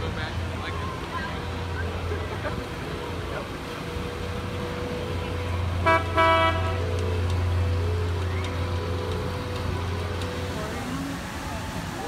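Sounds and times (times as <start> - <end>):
boat engine rumble: 0.0 - 12.0
boat horn toots: 5.8 - 8.0.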